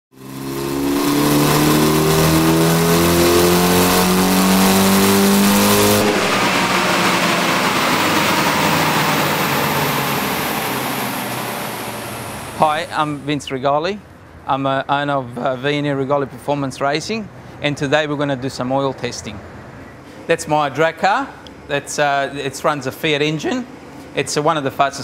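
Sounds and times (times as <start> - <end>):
car engine revving at full throttle: 0.1 - 13.3
rushing noise: 0.2 - 13.4.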